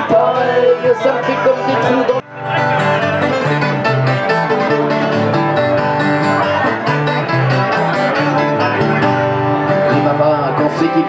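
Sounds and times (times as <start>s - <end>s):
acoustic band playing chanson: 0.0s - 11.0s
plucked strings melody: 0.0s - 11.0s.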